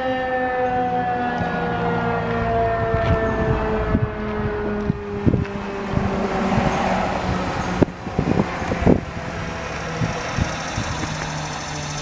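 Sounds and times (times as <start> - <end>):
siren winding down: 0.0 - 12.0
wind on microphone: 2.4 - 12.0.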